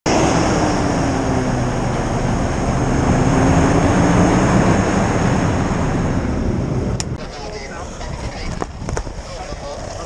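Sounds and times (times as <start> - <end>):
hovercraft engine drone: 0.1 - 10.0.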